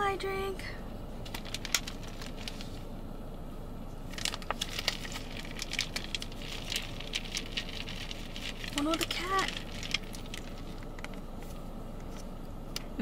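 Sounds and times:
plastic pouch crinkling: 1.2s - 2.8s, 4.1s - 12.3s.

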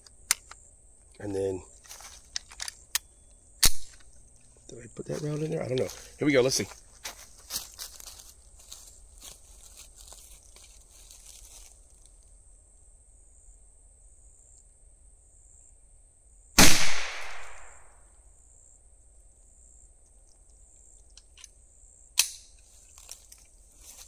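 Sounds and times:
rifle shot with echo: 16.6s - 18.0s
small sharp click: 22.2s - 22.6s.

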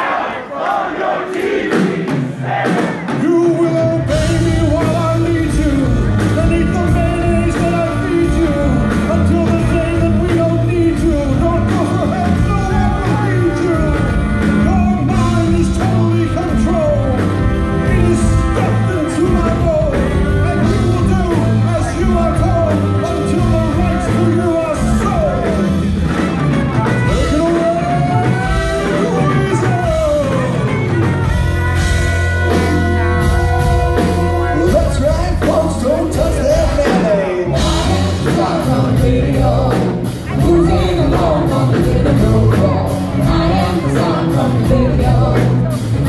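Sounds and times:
crowd cheering: 0.0s - 5.2s, 20.0s - 44.7s
live rock band playing: 1.6s - 46.0s.

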